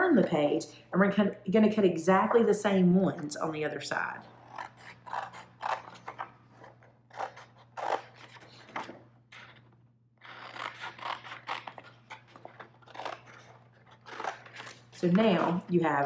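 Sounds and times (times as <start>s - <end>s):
scissors snipping cardstock: 4.5s - 9.6s, 10.2s - 15.8s.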